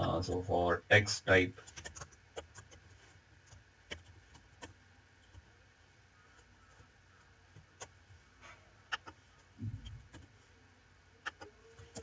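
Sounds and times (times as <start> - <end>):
keyboard and mouse clicks: 1.6 - 5.4, 7.5 - 8.0, 8.9 - 10.3, 11.3 - 12.0.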